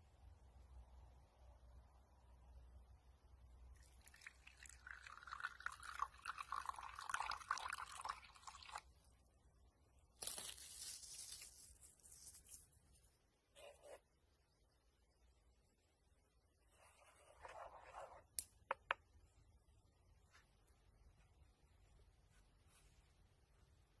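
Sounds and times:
water pouring and splashing: 0:03.8 - 0:08.9.

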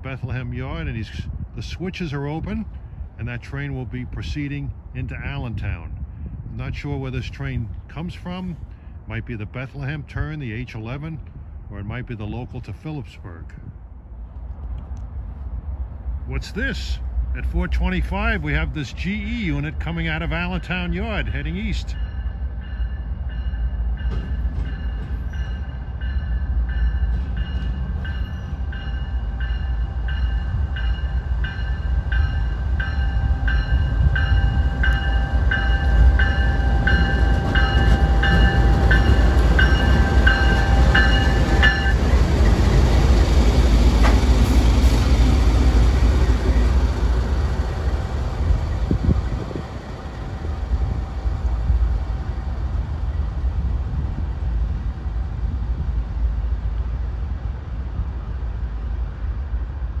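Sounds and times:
diesel locomotive engine rumble: 0:00.0 - 1:00.0
locomotive bell ringing: 0:20.5 - 0:42.8.

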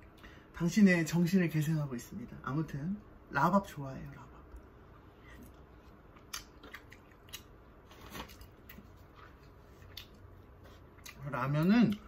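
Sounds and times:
chewing clicks and crunches: 0:05.4 - 0:10.3.

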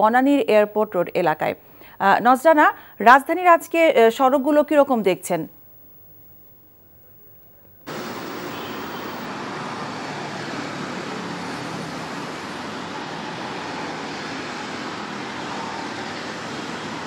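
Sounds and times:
road traffic noise: 0:07.8 - 0:17.0.

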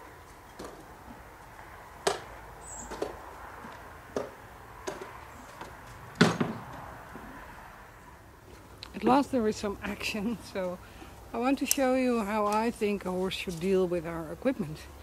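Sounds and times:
knocks against wheelbarrow: 0:06.2 - 0:06.7.

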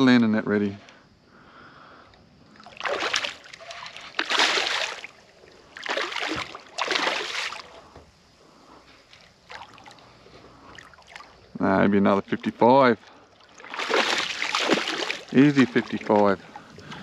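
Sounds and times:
fish splashing at surface: 0:02.6 - 0:05.2, 0:05.8 - 0:07.7, 0:13.5 - 0:16.3.

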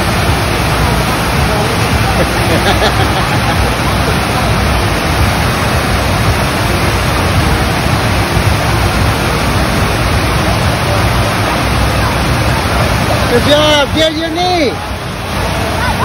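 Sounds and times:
rushing water: 0:00.0 - 0:16.0.

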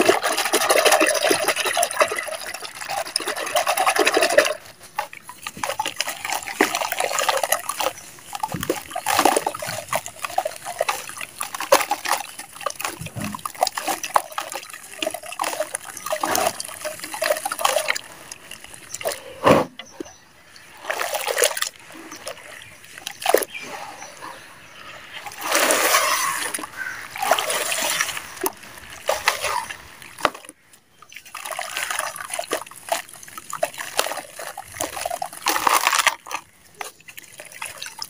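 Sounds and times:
wet splats and splashes: 0:00.0 - 0:19.2, 0:20.9 - 0:23.6, 0:31.1 - 0:38.0
wet dirt squelching and sloshing: 0:00.0 - 0:38.0.

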